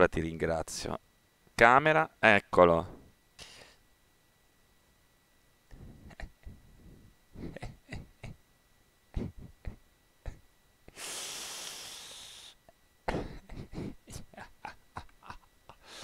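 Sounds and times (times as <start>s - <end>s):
quiet breathy laughter: 5.7s - 8.5s, 9.1s - 10.5s, 13.0s - 16.0s
breathy exhale: 10.9s - 12.6s.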